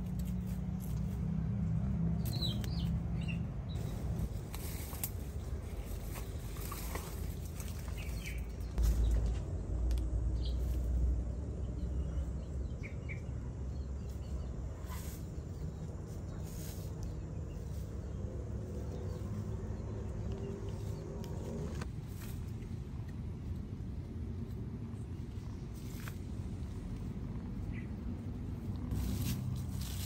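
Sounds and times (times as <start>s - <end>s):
rustles: 0.0s - 11.9s, 14.0s - 30.0s
low rumble: 0.0s - 30.0s.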